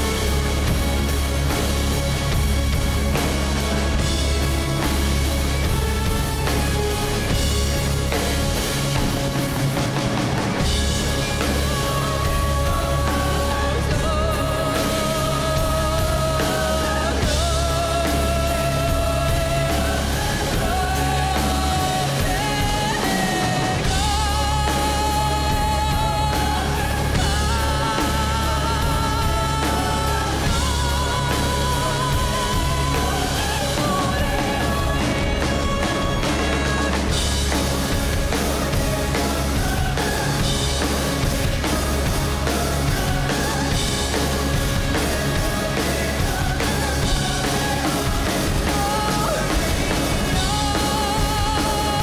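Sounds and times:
drum kit: 0.0 - 52.0
rock band and orchestra: 0.0 - 52.0
woman singing with vibrato: 11.0 - 52.0.

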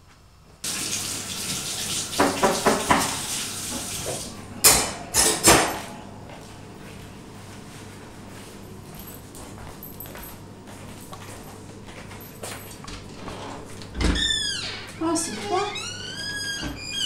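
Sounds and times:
tap running into metal sink: 2.0 - 4.9
dishes clattering: 2.2 - 3.2, 4.6 - 6.0.

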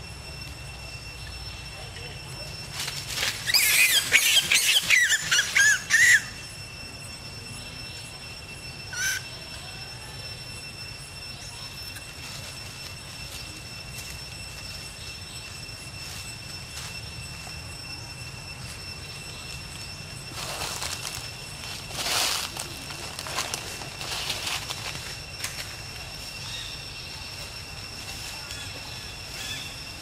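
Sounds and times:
macaque screaming: 3.5 - 6.4.

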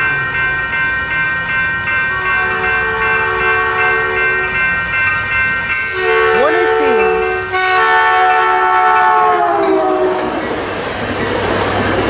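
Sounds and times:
train coaches rumbling on rails: 0.0 - 12.0
train horn blast: 2.1 - 4.6, 5.9 - 10.5.

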